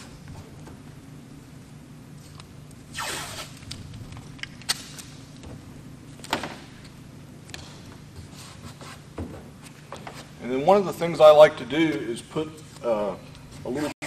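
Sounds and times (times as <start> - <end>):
steady low hum: 0.0 - 13.9
tape tearing off a roll: 2.2 - 5.3.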